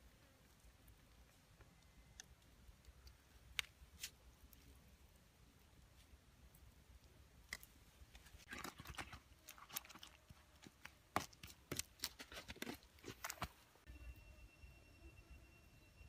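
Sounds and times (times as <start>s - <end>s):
pestle crushing chillies: 8.4s - 13.6s.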